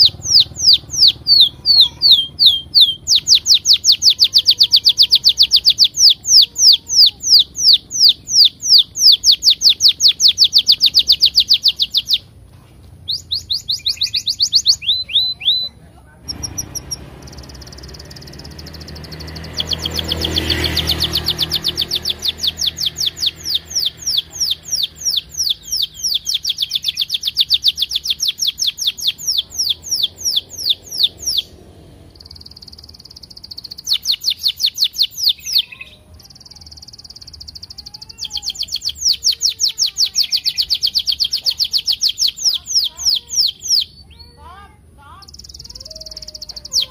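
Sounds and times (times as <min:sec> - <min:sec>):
canary chirping song: 0:00.0 - 0:46.9
canary rolling trills: 0:13.0 - 0:44.0.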